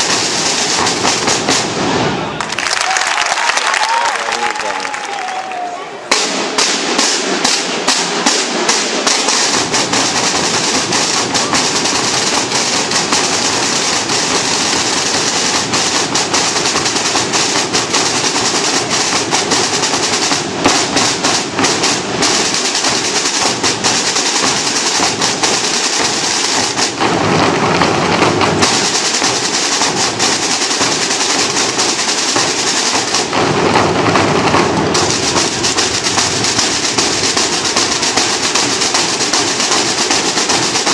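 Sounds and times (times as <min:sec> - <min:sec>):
bass drums: 0:00.0 - 0:02.0, 0:06.1 - 0:40.9
snare drum strokes and rolls: 0:00.0 - 0:40.9.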